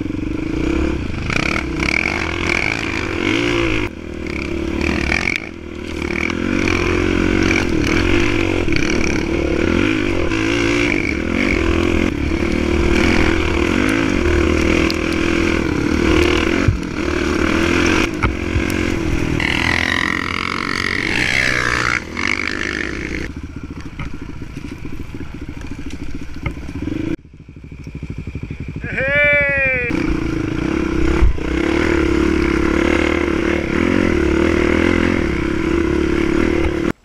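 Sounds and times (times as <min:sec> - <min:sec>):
dirt bike engine revving: 0:00.0 - 0:37.0
bike knocking over rough ground: 0:23.6 - 0:26.9.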